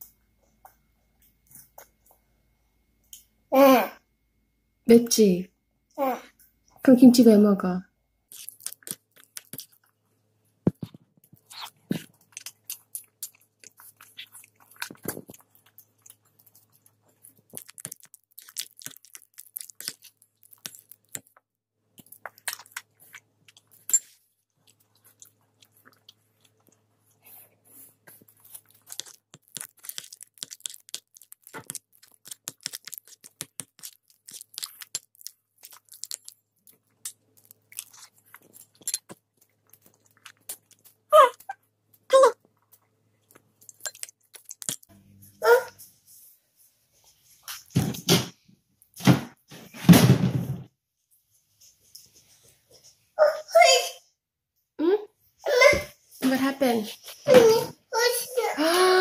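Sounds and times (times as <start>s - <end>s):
toddler chewing food: 8.3s - 10.0s, 10.7s - 21.4s, 22.0s - 45.9s.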